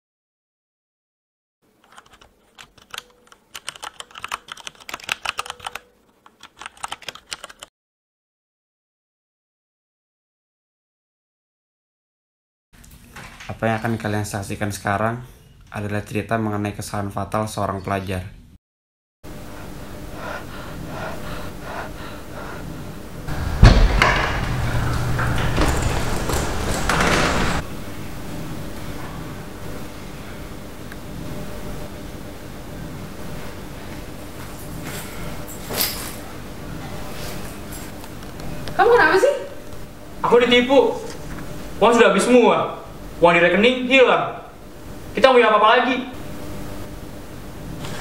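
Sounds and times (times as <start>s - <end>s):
computer keyboard typing: 1.8s - 7.7s
footsteps: 23.3s - 27.6s
knocking and rustling: 23.3s - 27.6s
wooden door thumping open: 23.3s - 27.6s.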